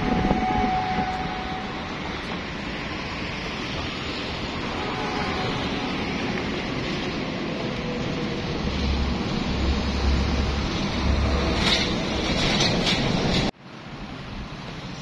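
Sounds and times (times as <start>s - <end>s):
wind buffeting microphone: 0.0s - 13.5s
city street traffic: 0.0s - 15.0s.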